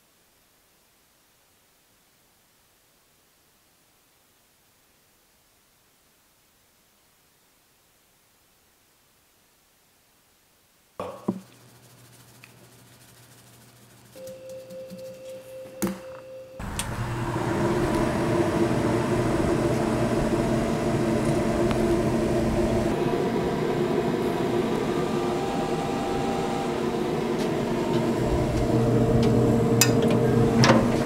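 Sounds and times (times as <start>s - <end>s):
fan humming: 11.0s - 31.0s.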